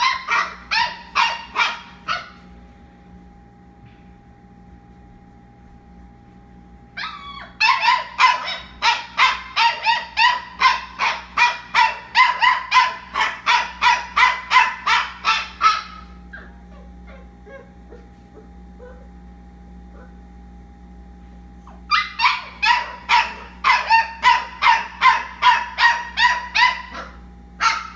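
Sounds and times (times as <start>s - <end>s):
faint steady hum: 0.0s - 27.9s
puppy whining and yelping: 7.0s - 13.6s, 14.9s - 19.1s, 21.6s - 25.2s.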